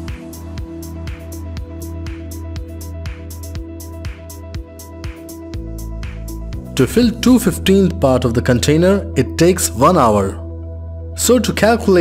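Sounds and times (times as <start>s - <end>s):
electronic music with steady beat: 0.0s - 8.0s.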